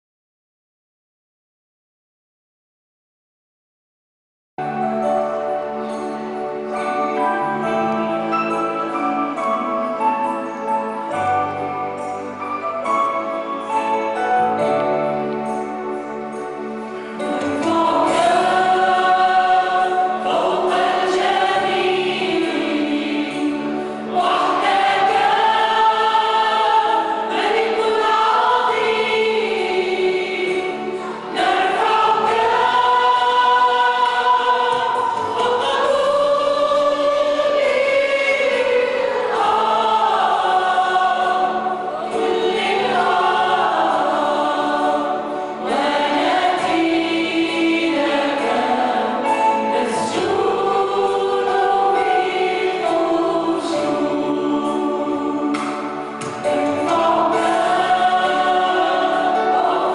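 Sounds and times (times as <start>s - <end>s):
group singing worship song: 17.2s - 59.9s.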